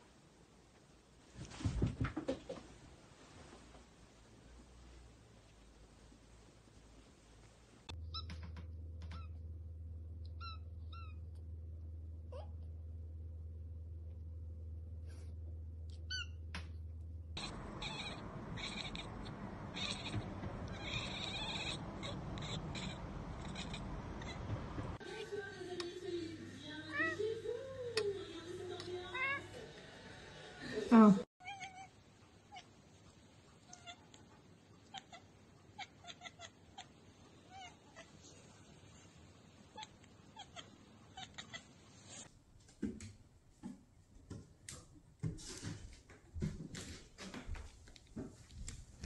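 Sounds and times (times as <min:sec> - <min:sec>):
cat calling: 0:17.4 - 0:25.0, 0:34.8 - 0:38.2, 0:39.7 - 0:42.2
outdoor hiss: 0:17.4 - 0:31.1.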